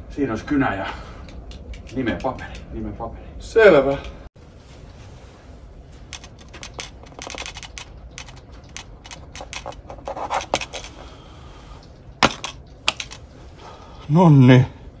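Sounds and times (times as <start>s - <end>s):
pen scratching on paper: 9.3s - 10.8s.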